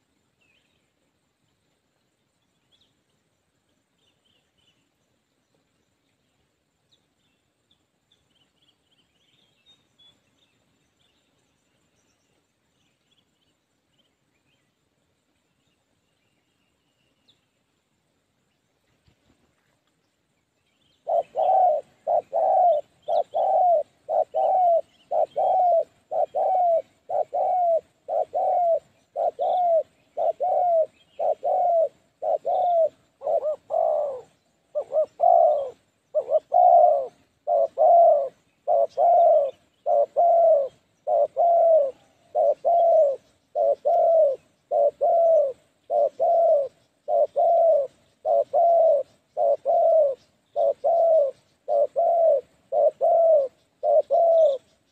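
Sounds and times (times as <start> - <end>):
dove cooing: 21.0 - 54.9.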